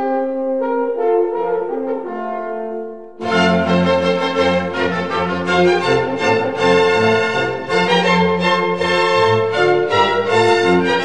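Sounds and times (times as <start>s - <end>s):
bowed strings playing sustained notes: 3.2s - 11.0s.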